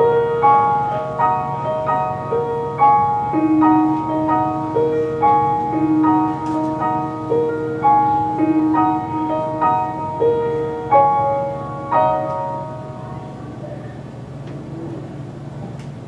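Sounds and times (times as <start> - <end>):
upright piano playing: 0.0 - 16.0.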